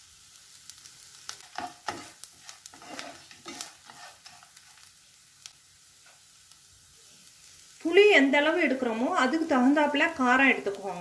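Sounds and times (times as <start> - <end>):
faint sizzle: 0.0 - 11.0
spatula scraping a frying pan: 1.0 - 5.0.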